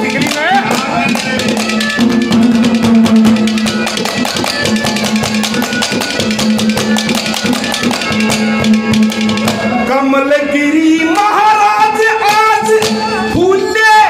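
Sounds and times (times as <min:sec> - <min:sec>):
fast drum beat: 0:00.0 - 0:09.6.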